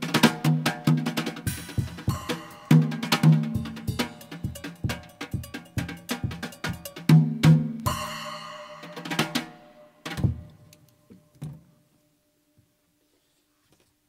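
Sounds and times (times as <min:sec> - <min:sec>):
drum hits: 0:00.0 - 0:10.6.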